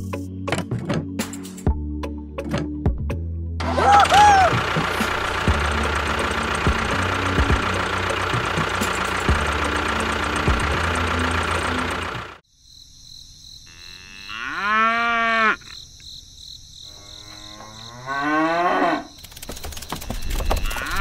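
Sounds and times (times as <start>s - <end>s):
tractor engine running: 3.6s - 12.4s, 19.2s - 21.0s
cow mooing: 13.7s - 15.7s, 16.8s - 19.1s, 20.6s - 21.0s.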